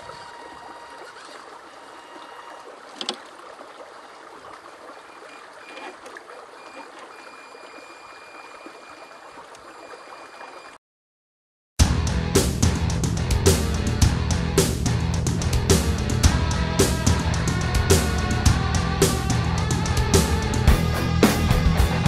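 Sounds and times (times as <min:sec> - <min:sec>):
creek water running: 0:00.0 - 0:10.8.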